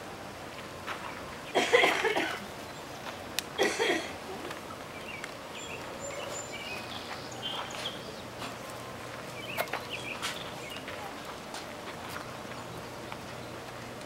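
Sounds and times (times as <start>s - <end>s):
bird chirps: 4.9s - 8.3s, 9.3s - 10.9s.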